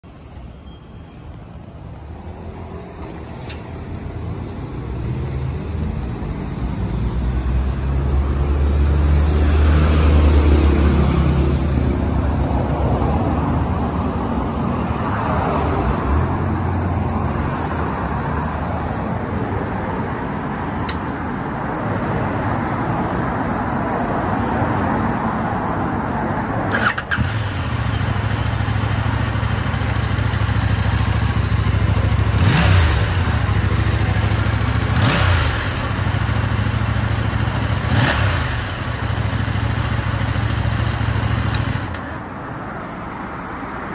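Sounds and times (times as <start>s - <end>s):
sharp click: 20.8s - 21.1s
motorcycle engine idling: 26.7s - 42.1s.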